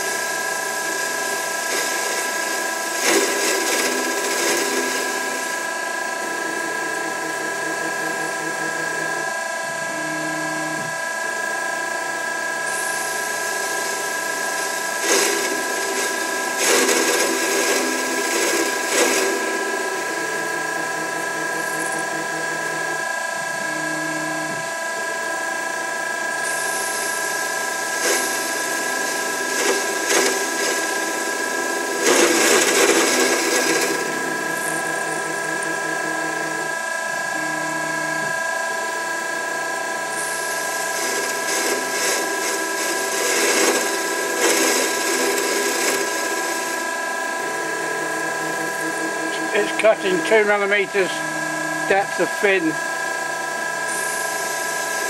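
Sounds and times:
blade cutting steel: 0.0 - 9.3, 12.7 - 23.1, 26.6 - 36.8, 40.2 - 53.1
lathe machine whine: 0.0 - 55.0
low hum: 45.6 - 52.4.

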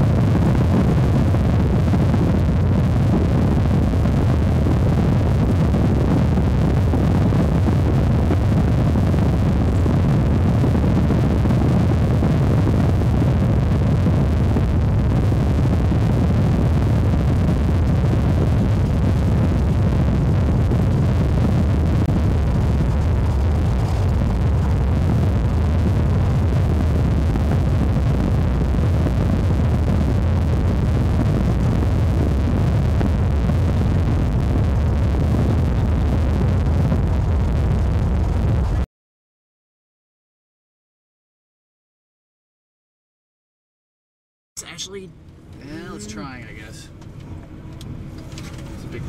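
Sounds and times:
vehicle road noise rumble: 0.0 - 38.8, 44.7 - 49.0
wind buffeting microphone: 0.0 - 38.8.

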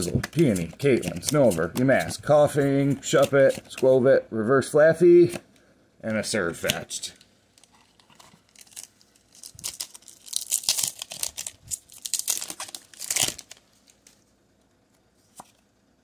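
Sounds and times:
foil wrapper crinkling and tearing: 7.6 - 14.2.

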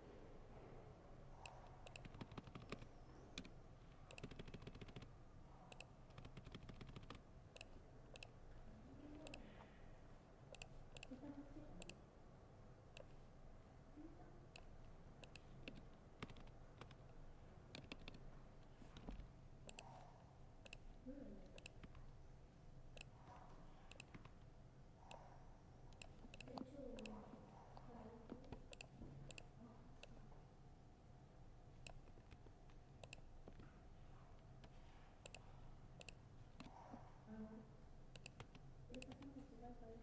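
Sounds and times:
laptop keyboard typing: 1.4 - 8.4, 10.5 - 11.2, 14.6 - 20.0, 21.5 - 22.2, 23.8 - 24.5, 25.9 - 27.3, 31.8 - 33.6, 34.6 - 36.7, 38.1 - 39.4.

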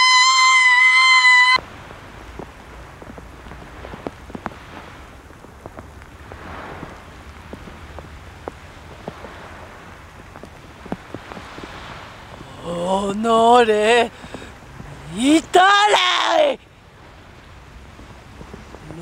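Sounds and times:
wind on microphone: 0.0 - 15.7, 16.4 - 19.0
small ticks and crackles: 2.2 - 9.4, 10.1 - 12.4.

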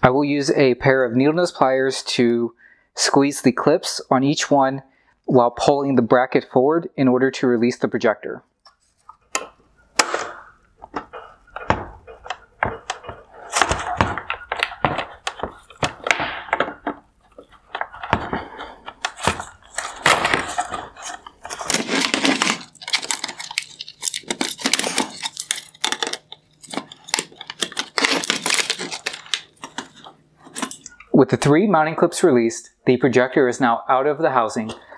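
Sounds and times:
plastic scraping: 8.7 - 30.8
hard plastic clicking and cracking: 8.7 - 30.9.

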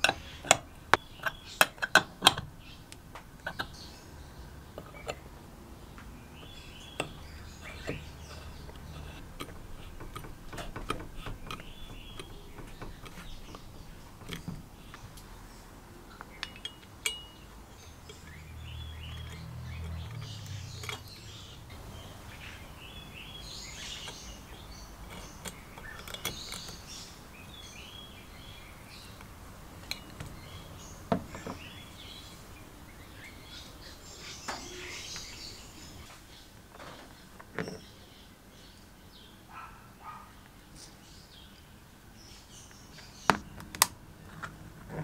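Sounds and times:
light metallic clicks and taps: 19.1 - 21.4.

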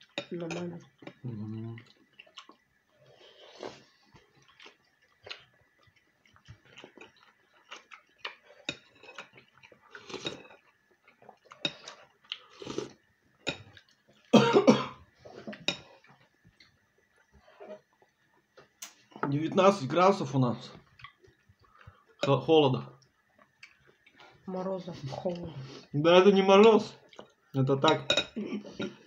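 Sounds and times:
person chewing: 1.0 - 14.3, 20.8 - 22.3, 23.0 - 24.4, 27.0 - 27.5
person coughing: 14.4 - 15.0.

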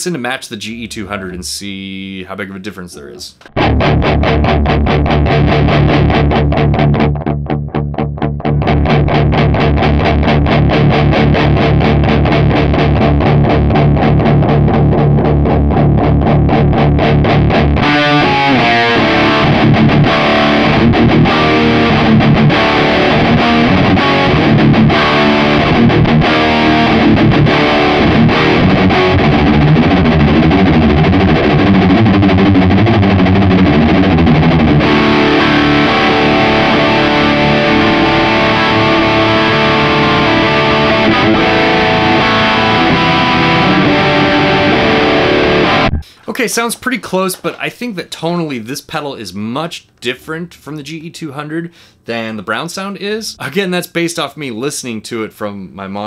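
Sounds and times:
distorted electric guitar riff: 2.9 - 46.4.

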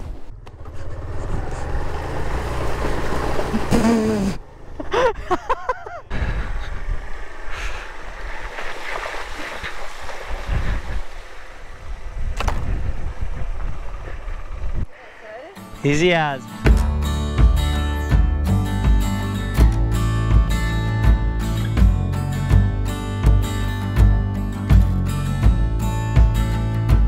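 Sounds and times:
motorcycle engine at low speed: 0.0 - 5.2, 10.3 - 14.9
wind noise on microphone: 6.0 - 15.0.

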